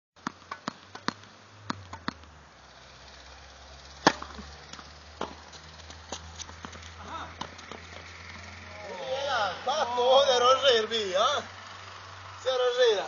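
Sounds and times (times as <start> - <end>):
tennis ball struck by rackets: 0.2 - 2.3, 4.0 - 8.1
tennis ball bouncing on court: 0.2 - 2.4, 4.0 - 8.6.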